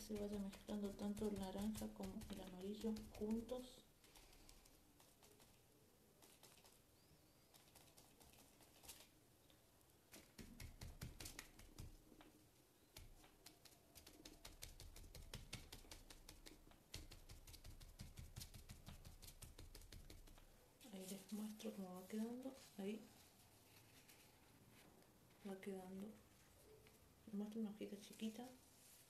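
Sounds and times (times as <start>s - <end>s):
sponge tapping on paper: 0.0s - 3.7s, 10.2s - 12.3s, 13.0s - 20.5s.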